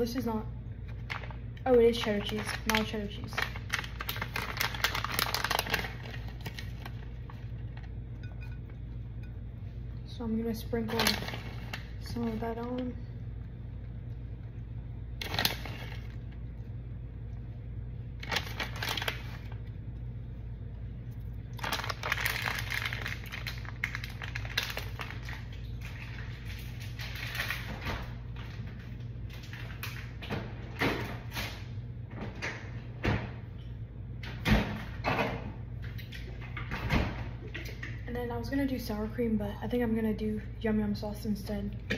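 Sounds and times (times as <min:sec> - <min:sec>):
kitchen hum: 0:00.0 - 0:41.9.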